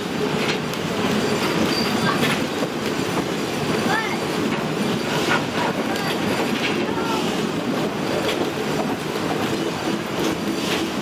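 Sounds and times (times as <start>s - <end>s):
train wheels rumbling on rails: 0.0s - 11.0s
wheels squealing: 1.0s - 2.6s.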